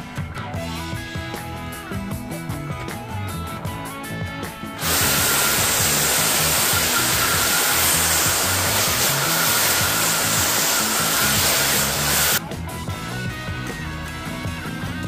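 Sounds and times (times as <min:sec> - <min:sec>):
angle grinder brush wheel on wood: 0:04.8 - 0:12.4.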